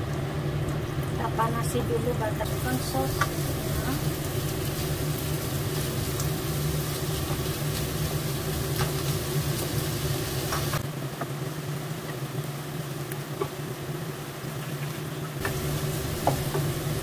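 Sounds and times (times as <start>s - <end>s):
steady low hum: 0.0s - 11.0s, 15.4s - 17.0s
food sizzling in frying pan: 0.0s - 17.0s.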